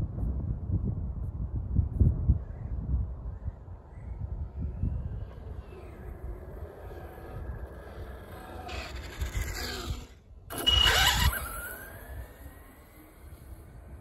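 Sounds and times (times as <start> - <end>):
toy car speeding past: 4.7 - 14.0.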